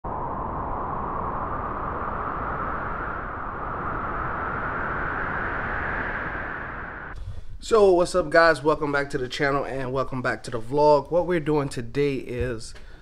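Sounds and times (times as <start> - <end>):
steady rushing noise: 0.0 - 9.0.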